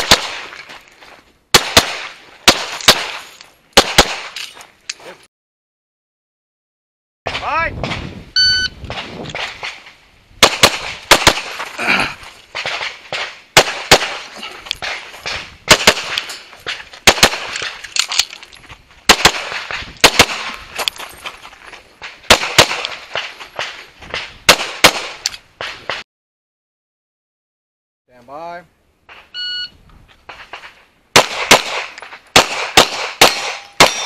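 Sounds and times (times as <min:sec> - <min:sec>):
pistol shots: 0:00.0 - 0:00.5, 0:01.5 - 0:04.4, 0:10.4 - 0:11.6, 0:12.5 - 0:17.8, 0:19.1 - 0:20.6, 0:22.3 - 0:23.8, 0:24.5 - 0:26.0, 0:30.5 - 0:34.0
shot timer beep: 0:08.4 - 0:08.8, 0:29.4 - 0:29.7.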